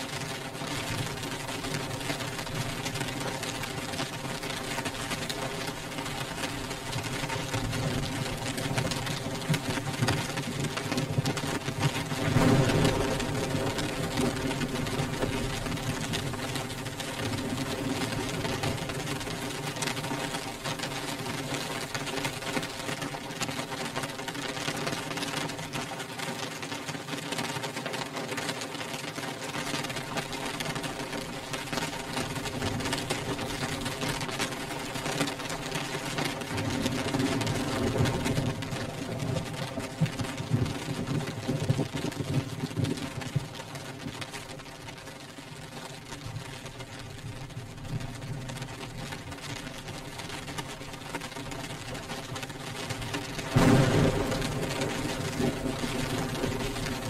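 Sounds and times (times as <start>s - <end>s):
rain on window glass: 0.0s - 57.0s.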